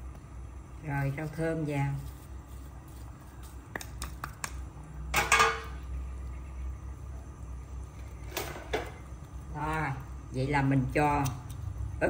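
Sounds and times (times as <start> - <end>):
low steady hum: 0.0 - 12.0
utensils clattering against pot: 5.1 - 5.8, 8.3 - 9.0.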